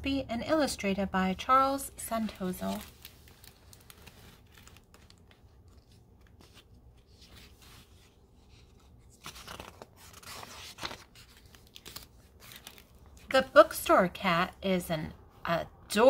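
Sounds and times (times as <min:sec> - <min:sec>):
book pages rustling: 0:02.1 - 0:13.4.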